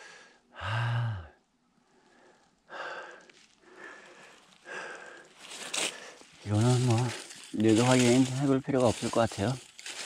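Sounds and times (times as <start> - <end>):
person breathing heavily: 0.0 - 6.4.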